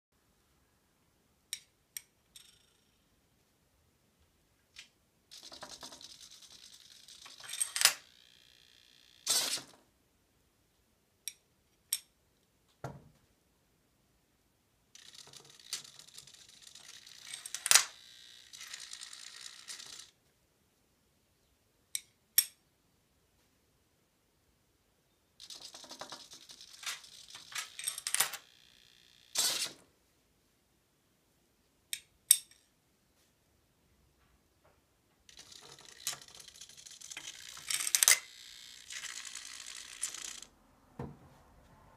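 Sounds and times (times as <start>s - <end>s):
coins falling clicks: 5.3s - 9.7s, 15.0s - 20.1s, 25.4s - 29.8s, 35.3s - 40.5s
mechanical whirring with rapid clicking: 25.4s - 27.8s, 35.3s - 40.5s.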